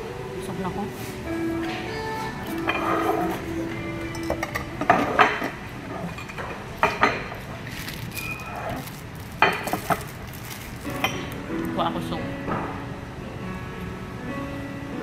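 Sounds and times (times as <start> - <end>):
fork and knife clinking on plate: 2.4 - 7.4.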